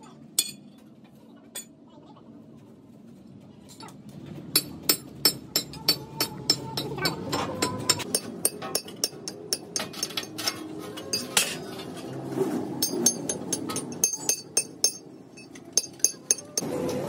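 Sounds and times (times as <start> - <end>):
hammer tapping on steel: 4.6 - 10.4, 12.8 - 16.7.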